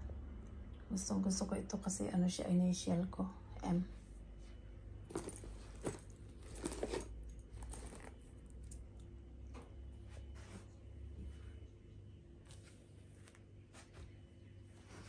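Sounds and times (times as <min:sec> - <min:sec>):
leather rustling: 0:05.1 - 0:08.8.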